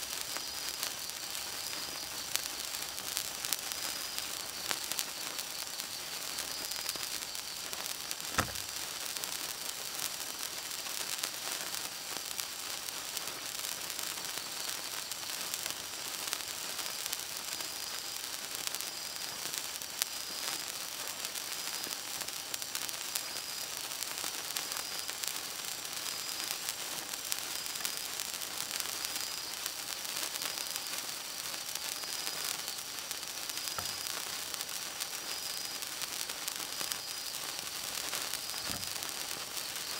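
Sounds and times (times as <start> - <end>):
sparkler fizzing and crackling: 0.0 - 39.9
dull thump: 8.4 - 8.7.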